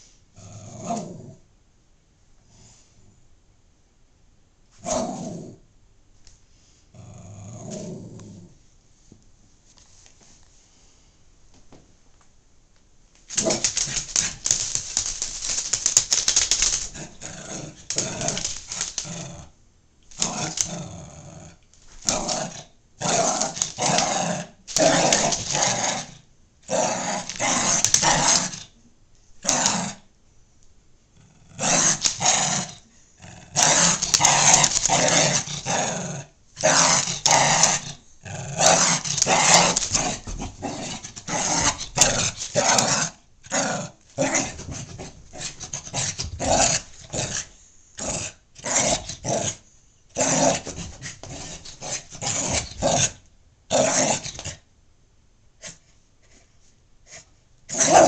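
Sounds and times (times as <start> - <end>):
small dog growling: 0.4 - 1.4, 7.0 - 8.6, 15.8 - 28.7, 31.2 - 49.6.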